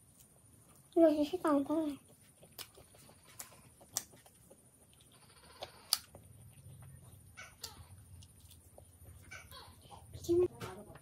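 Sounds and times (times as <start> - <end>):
chewing and biting pizza: 2.0 - 9.4.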